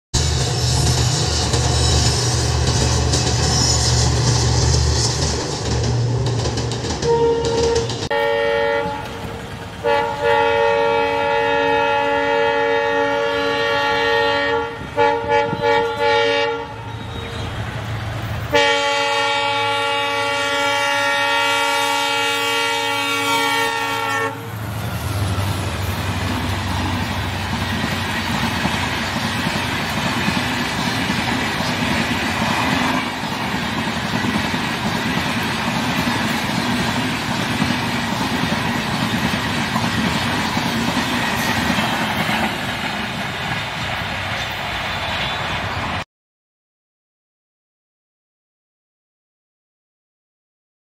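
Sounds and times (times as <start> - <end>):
train coaches rumbling and clattering: 0.1 - 46.0
locomotive horn blasts: 7.0 - 17.6, 18.5 - 24.6.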